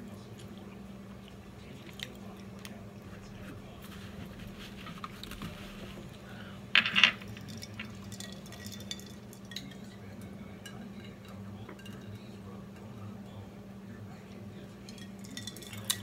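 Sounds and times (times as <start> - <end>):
cutlery and plates clinking: 6.8 - 13.1, 14.8 - 16.0.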